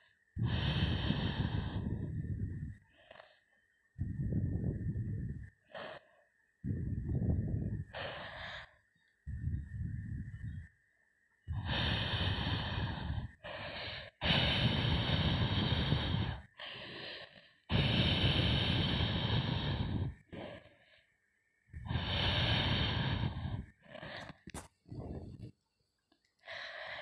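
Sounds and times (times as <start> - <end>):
heavy rasping animal breaths: 0.0 - 9.4, 11.5 - 21.1, 21.7 - 25.5.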